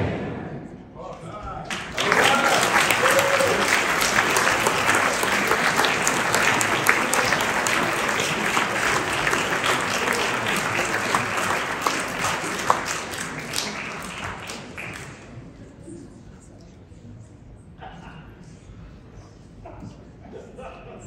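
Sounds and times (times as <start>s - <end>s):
crowd applauding: 1.6s - 15.6s.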